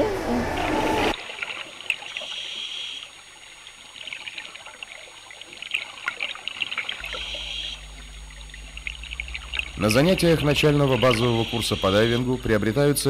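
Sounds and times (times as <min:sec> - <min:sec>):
underwater exhaust bubbles: 0:03.2 - 0:13.0.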